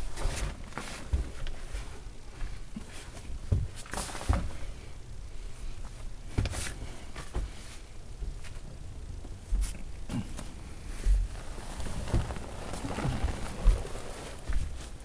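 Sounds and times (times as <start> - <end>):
plastic sheeting crinkling: 11.0 - 15.0.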